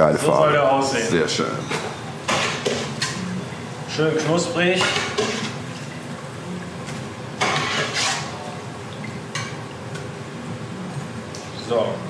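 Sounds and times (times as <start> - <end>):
metal spoon scraping pot: 7.4 - 8.4.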